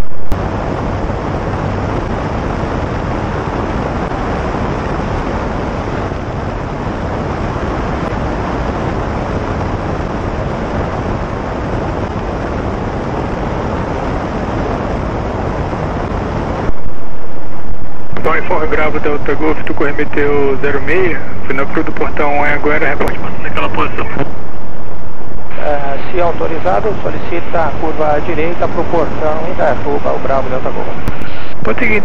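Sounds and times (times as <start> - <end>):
wind rushing: 0.0 - 18.2.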